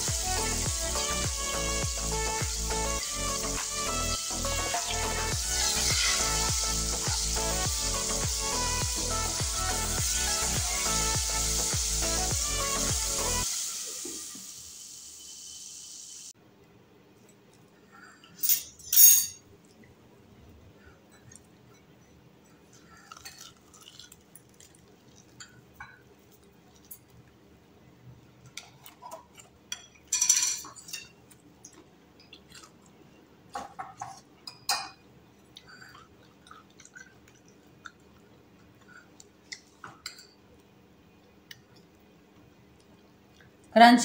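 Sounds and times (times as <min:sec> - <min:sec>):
fried chicken crust crackling: 0:22.9 - 0:25.6.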